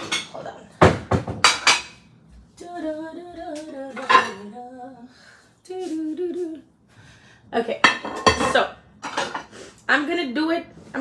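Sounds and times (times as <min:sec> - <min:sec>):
ceramic plates clattering: 0:00.0 - 0:02.0, 0:03.9 - 0:04.5, 0:07.8 - 0:09.5.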